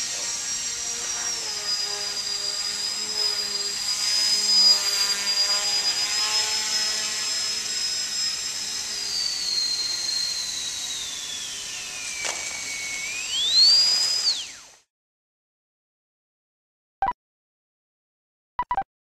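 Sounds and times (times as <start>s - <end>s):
electric motor and propeller whining: 0.0s - 14.9s.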